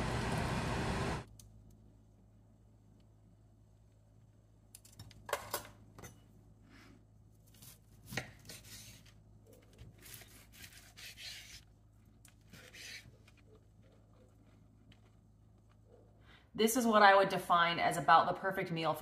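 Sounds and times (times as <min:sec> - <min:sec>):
knife sawing through steak: 0:10.3 - 0:11.6.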